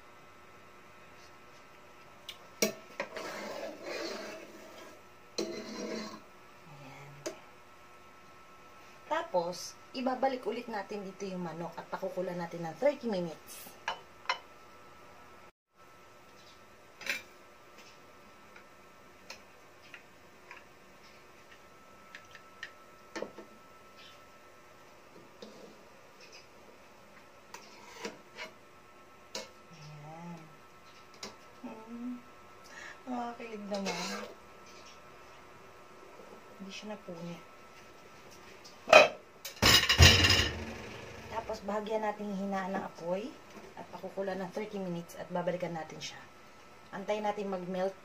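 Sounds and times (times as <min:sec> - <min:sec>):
faint steady hum: 0:00.0 - 0:48.0
ladle scraping pot: 0:03.0 - 0:06.3, 0:27.5 - 0:28.6.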